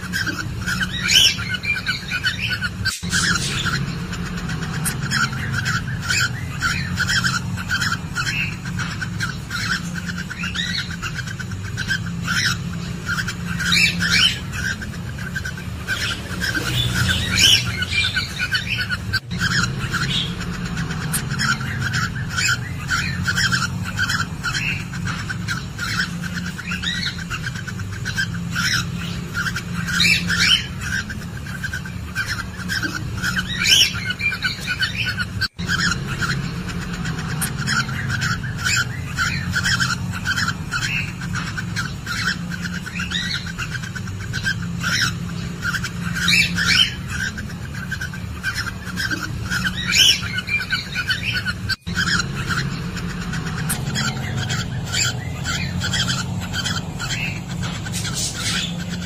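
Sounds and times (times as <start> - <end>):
cockatiels chirping and calling: 0.0 - 59.0
steady low hum: 0.0 - 59.0.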